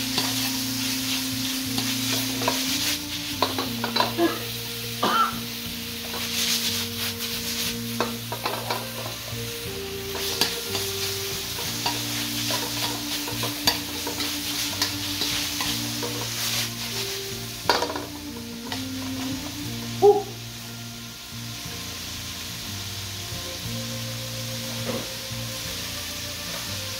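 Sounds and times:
spatula scraping pan: 0.0 - 19.9
food sizzling in pan: 0.0 - 26.9.

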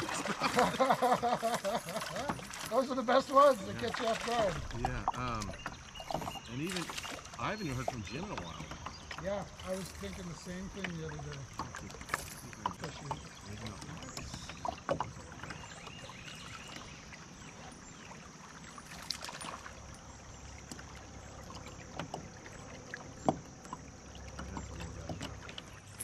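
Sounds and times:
water lapping against kayak hull: 0.0 - 26.0
light knocks and clicks: 23.2 - 25.7.

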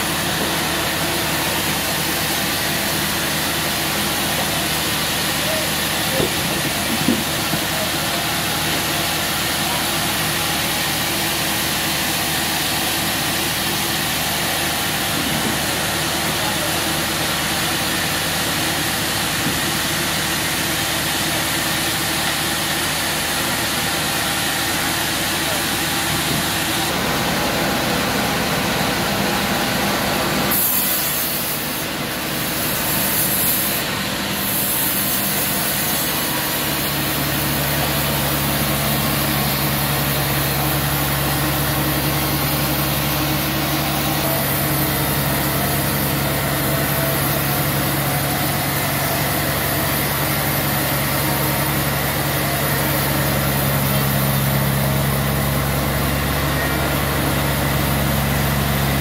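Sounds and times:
sawmill motor drone: 0.0 - 59.0
saw blade rasping wood: 30.5 - 54.9.

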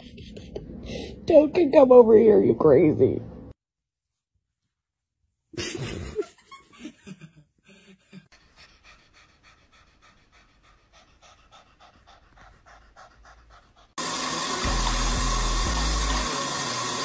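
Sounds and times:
cat panting: 8.2 - 14.0.

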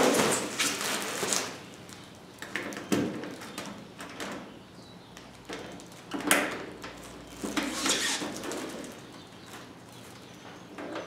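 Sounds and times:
plastic scraping and rustling: 0.0 - 2.1, 5.6 - 10.2.

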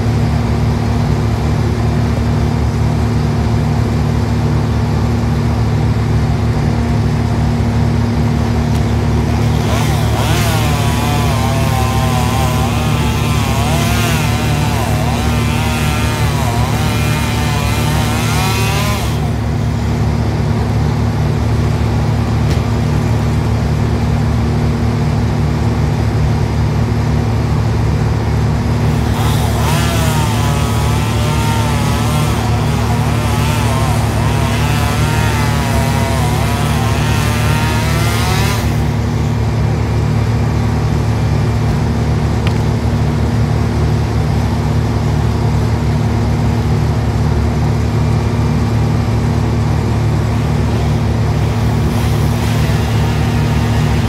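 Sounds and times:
engine drone: 0.0 - 54.0
chainsaw revving and cutting: 8.5 - 23.6, 28.6 - 47.8, 48.4 - 54.0.

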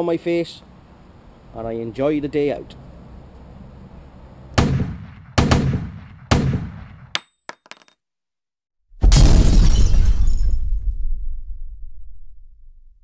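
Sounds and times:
gunshot-like bangs: 4.6 - 7.1
crash like breaking glass: 9.0 - 11.1.

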